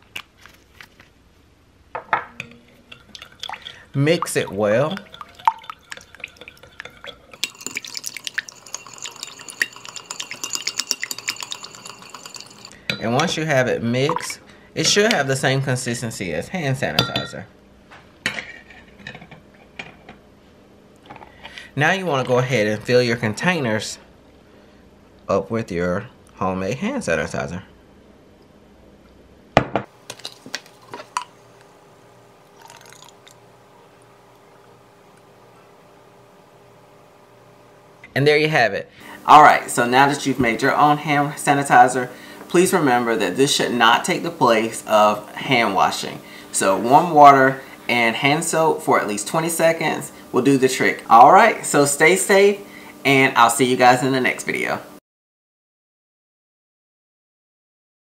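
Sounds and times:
glass ringing: 0:02.2 - 0:13.2
spoon clinking against glass: 0:02.4 - 0:13.2
liquid trickling: 0:02.5 - 0:12.8, 0:32.4 - 0:34.4.

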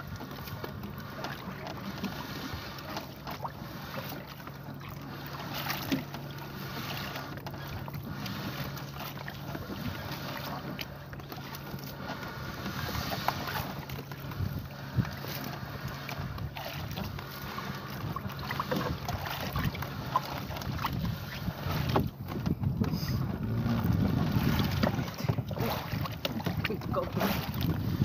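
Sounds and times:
low steady hum: 0:00.0 - 0:28.0
net rustling against hull: 0:00.0 - 0:28.0
wind on microphone: 0:12.5 - 0:28.0.

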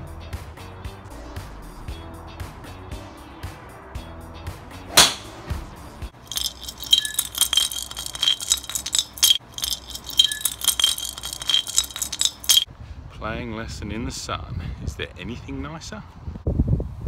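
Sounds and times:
metallic rattle of shaken clubhead: 0:04.9 - 0:05.4, 0:06.2 - 0:12.7
sharp golf club strike: 0:04.9 - 0:05.5.

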